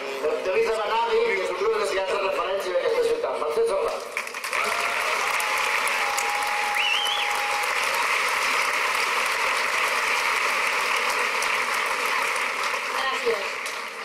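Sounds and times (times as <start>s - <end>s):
crowd applauding: 4.0s - 14.0s.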